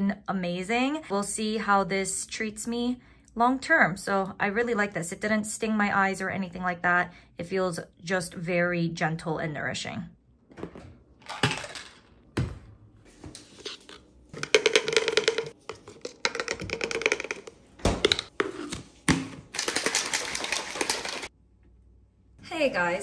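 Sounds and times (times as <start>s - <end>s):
shaker bottle rattling: 14.4s - 18.4s, 19.5s - 21.3s.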